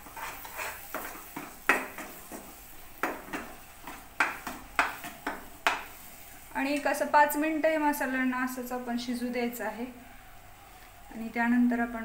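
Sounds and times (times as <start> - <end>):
spoon scraping paste in pan: 0.0 - 6.2.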